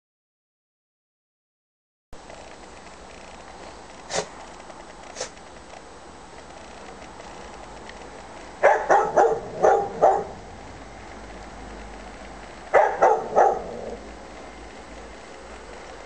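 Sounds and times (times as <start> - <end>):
dog barking: 8.6 - 10.4, 12.7 - 14.0.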